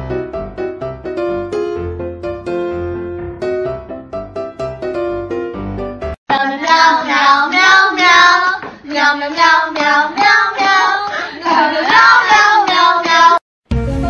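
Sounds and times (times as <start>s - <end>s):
piano tune: 0.0s - 8.2s.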